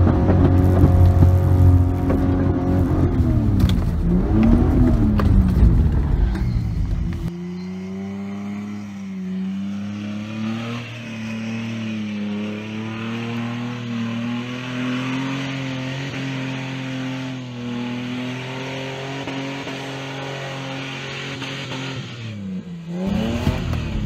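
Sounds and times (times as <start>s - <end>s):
car engine pulling under load: 0.0s - 16.4s.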